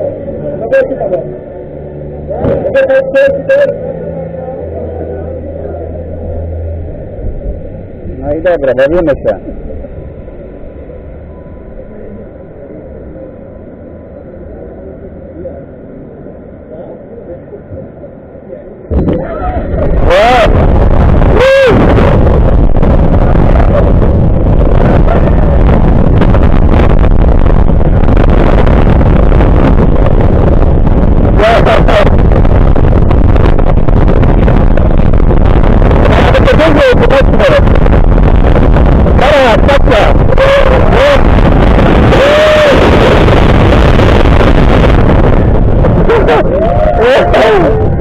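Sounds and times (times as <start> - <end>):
roller coaster rumbling: 0.0 - 48.0
wind rushing on microphone: 18.9 - 48.0.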